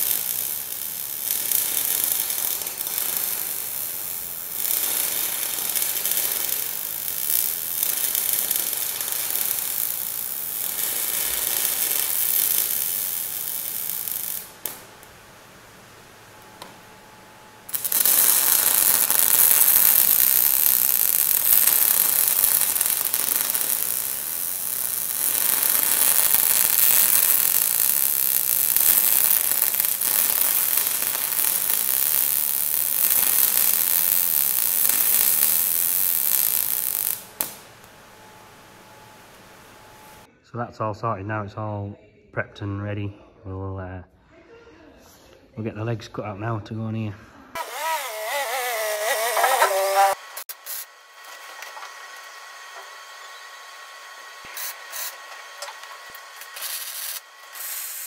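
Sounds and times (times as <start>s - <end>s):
welding arc crackling: 0.0s - 16.8s, 17.6s - 40.3s, 47.6s - 58.0s.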